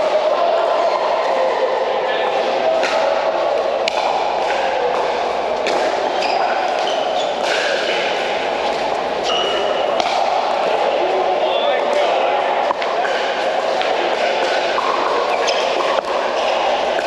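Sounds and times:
busy indoor court hall din: 0.0s - 17.0s.

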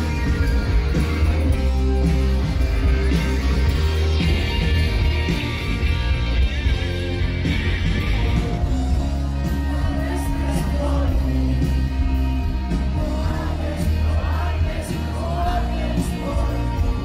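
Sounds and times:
rock music: 0.0s - 17.0s
person singing: 7.9s - 17.0s.

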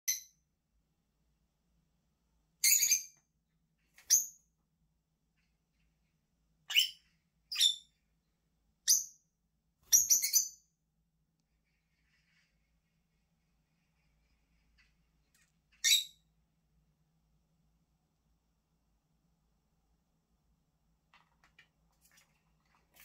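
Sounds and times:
lovebirds chirping: 6.7s - 8.0s, 9.8s - 10.7s, 11.6s - 16.3s.

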